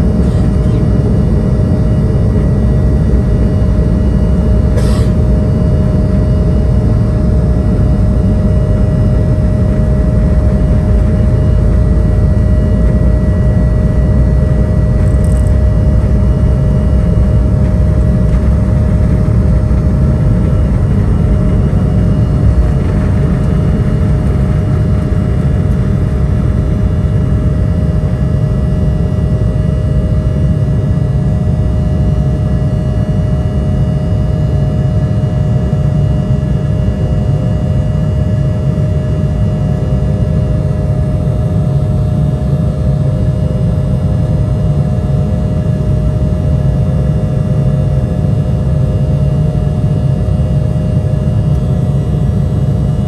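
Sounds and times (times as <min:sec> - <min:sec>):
jet cabin low rumble: 0:00.0 - 0:53.0
engine whining tones: 0:06.6 - 0:27.0.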